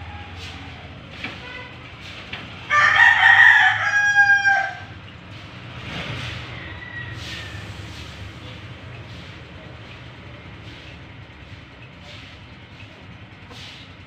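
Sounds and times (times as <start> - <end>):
rooster crowing: 2.7 - 5.0, 6.4 - 7.7.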